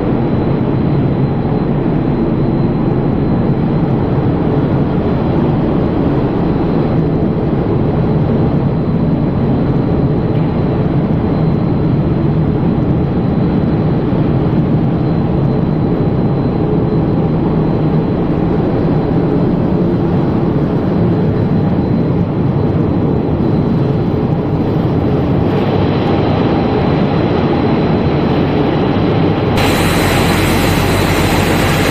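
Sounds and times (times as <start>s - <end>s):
high whine: 29.6s - 31.9s
steady machinery noise: 29.6s - 31.9s.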